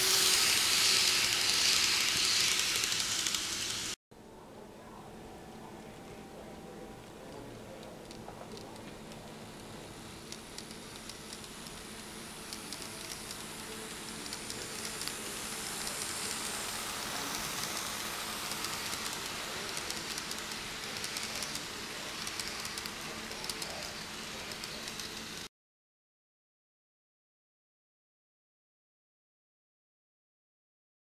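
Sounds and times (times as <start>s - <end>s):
model train wheels rumbling: 0.0s - 4.0s, 7.3s - 25.5s.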